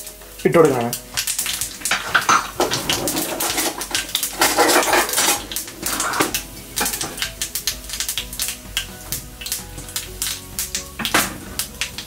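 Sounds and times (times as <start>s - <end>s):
seeds spluttering in hot oil: 0.0s - 12.0s.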